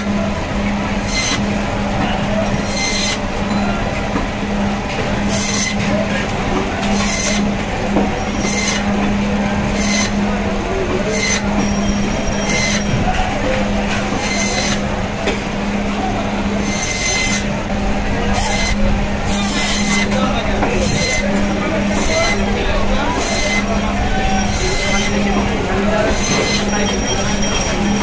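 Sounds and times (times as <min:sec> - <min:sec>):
band saw humming: 0:00.0 - 0:28.0.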